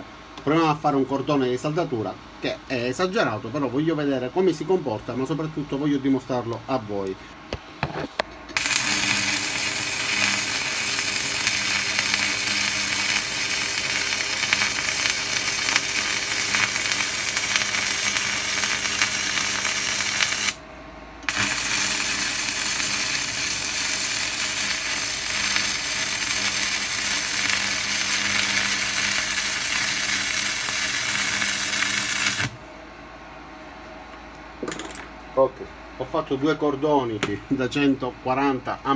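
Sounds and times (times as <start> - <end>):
welding arc crackling: 8.5 - 20.6, 21.2 - 32.7.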